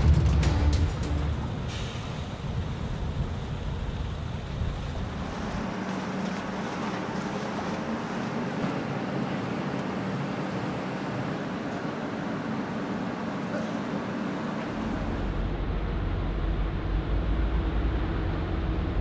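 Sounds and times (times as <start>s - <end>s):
tugboat engine running: 0.0s - 2.5s, 4.7s - 19.0s
rushing water: 0.0s - 19.0s.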